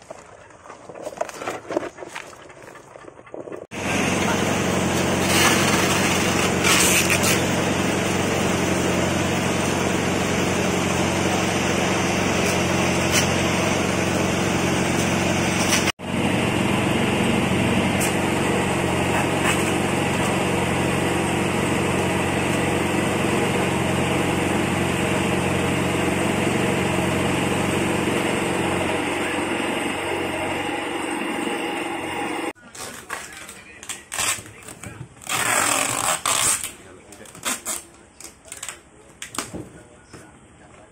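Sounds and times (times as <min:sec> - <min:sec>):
small engine humming: 0:03.7 - 0:32.6.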